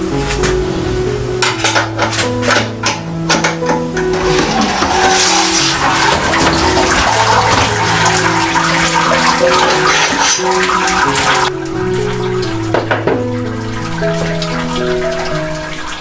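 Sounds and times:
background music with held notes: 0:00.0 - 0:16.0
liquid draining through basket: 0:03.9 - 0:16.0.

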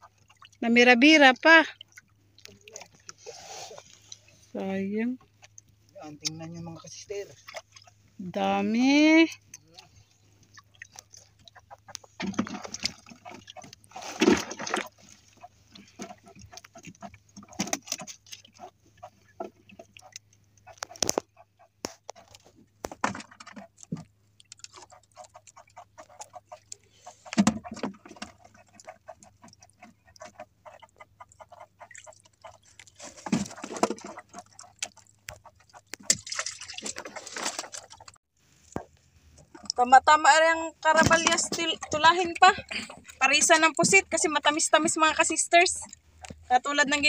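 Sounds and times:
fishing lines clicking and rustling: 0:14.8 - 0:39.8.

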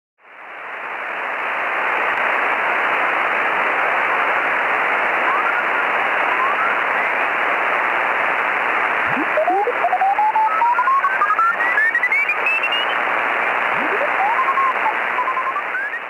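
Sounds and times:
radio static hiss: 0:00.3 - 0:16.0.

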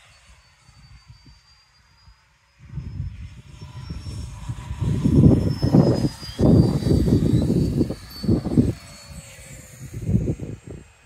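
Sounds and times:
rc jet fan whine: 0:00.0 - 0:11.0
wind on microphone: 0:02.6 - 0:11.0.

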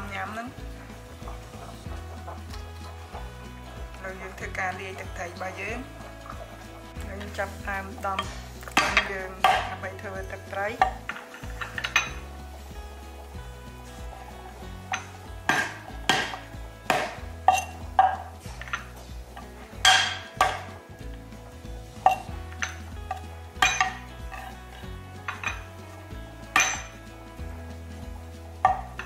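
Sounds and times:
cleaver chopping on wooden board: 0:15.5 - 0:17.2.

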